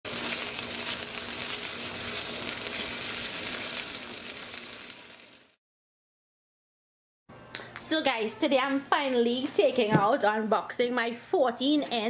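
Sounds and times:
garlic sizzling in hot oil: 0.0s - 5.6s.

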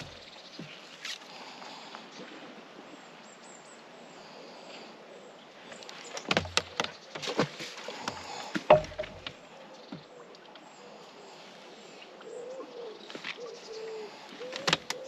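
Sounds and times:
fishing tackle clicks and knocks: 5.8s - 9.4s, 14.5s - 15.0s.

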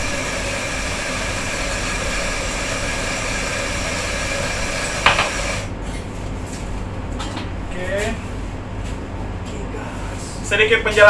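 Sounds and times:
electric coffee grinder running: 0.0s - 5.7s.

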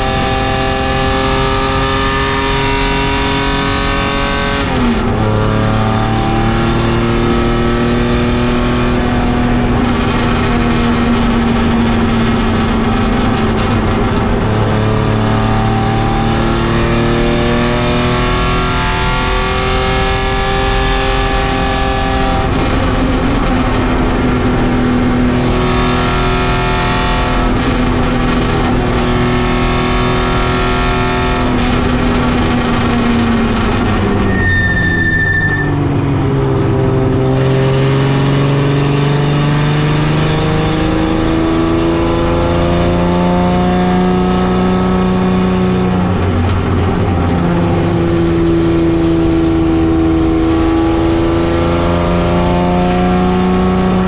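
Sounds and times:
race car engine running hard: 0.0s - 54.0s
brief high squeal: 33.9s - 35.8s.

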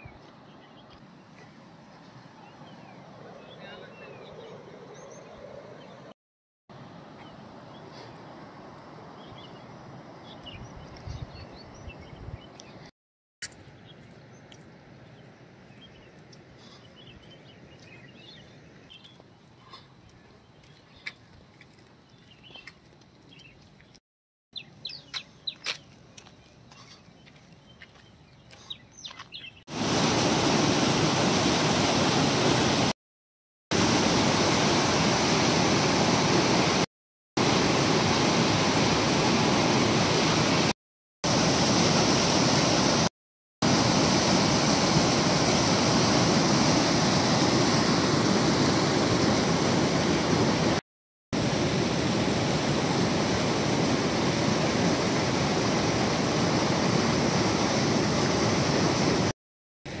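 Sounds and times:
river water rushing over rocks: 29.7s - 32.8s.

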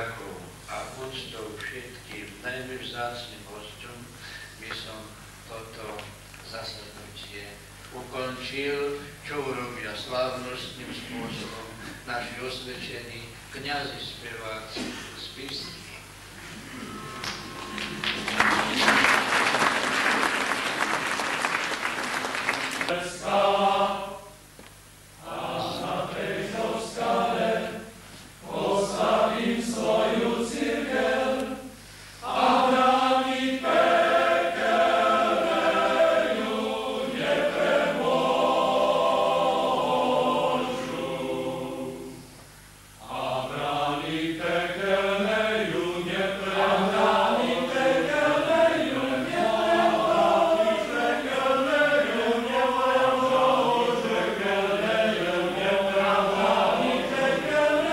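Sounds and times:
singers breathing: 4.2s - 4.6s, 31.7s - 32.3s
men's choir singing a hymn: 8.0s - 13.0s, 22.8s - 24.4s, 25.2s - 42.3s, 43.0s - 57.9s.

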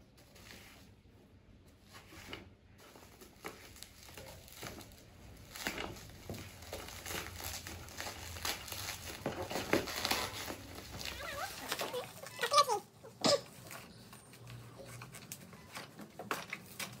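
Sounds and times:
bubble wrap crinkling: 2.8s - 12.8s.

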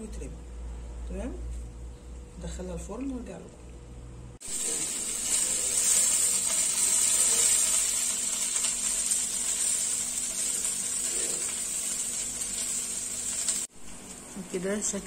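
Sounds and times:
fat sizzling in oven: 4.4s - 15.0s.

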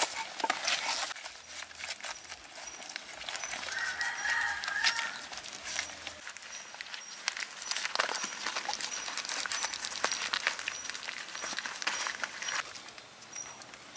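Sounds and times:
puppies chewing and smacking: 0.0s - 13.9s.

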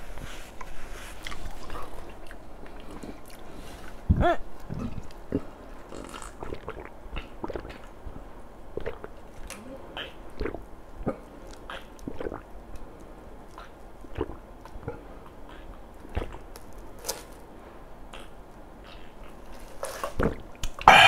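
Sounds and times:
person gulping and swallowing: 1.2s - 9.6s, 10.3s - 12.5s, 13.6s - 15.1s, 16.0s - 16.5s, 20.1s - 21.0s.

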